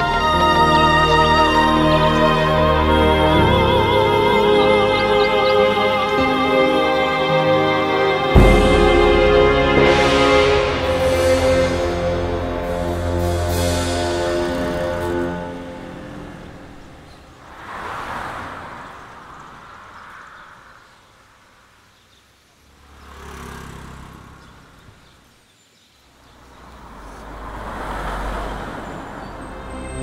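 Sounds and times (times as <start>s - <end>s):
truck engine rumble: 0.0s - 20.7s, 26.4s - 30.0s
vehicles passing: 0.0s - 30.0s.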